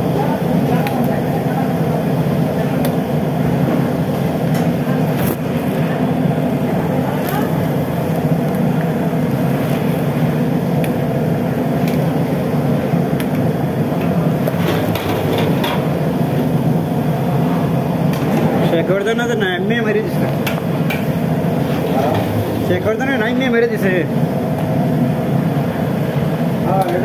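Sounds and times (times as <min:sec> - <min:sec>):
kitchen equipment rumbling: 0:13.9 - 0:16.4, 0:17.4 - 0:24.0.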